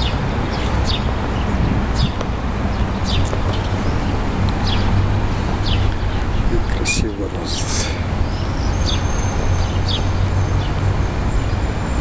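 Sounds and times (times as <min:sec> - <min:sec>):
steady low rumble: 0:00.0 - 0:09.0
small birds chirping: 0:00.0 - 0:12.0.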